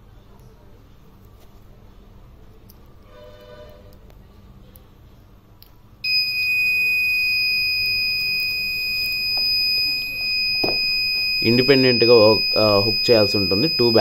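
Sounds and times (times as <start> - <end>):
high-pitched buzzer beep: 6.1 - 14.0.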